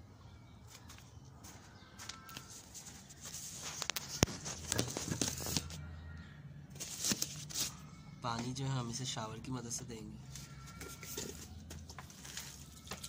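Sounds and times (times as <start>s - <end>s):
rustling handling noise: 0.7s - 5.8s, 6.8s - 7.8s, 10.3s - 13.0s.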